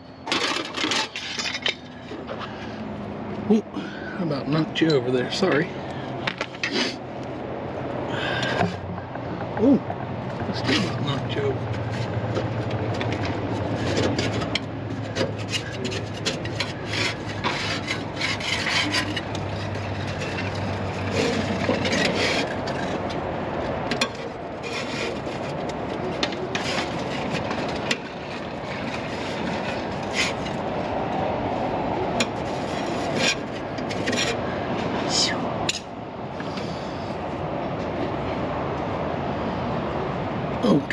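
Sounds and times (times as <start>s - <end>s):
low hum: 7.2s - 23.7s
sharp clicks and knocks: 8.4s - 11.0s
scraping and rubbing strokes: 10.4s - 23.2s, 32.2s - 34.5s.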